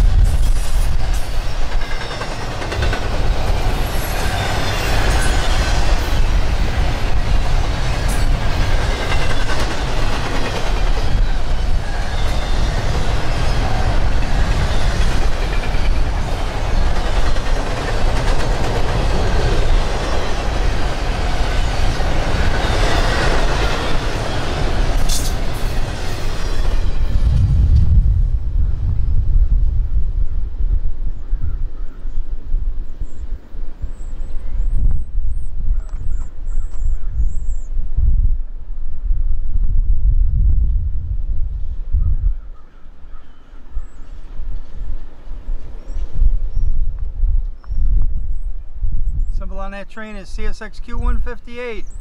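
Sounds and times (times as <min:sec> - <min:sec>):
rumble of passing freight cars: 0:00.0 - 0:31.9
train wheels clattering over rail joints: 0:00.2 - 0:27.1
wheel squeal: 0:11.2 - 0:13.8.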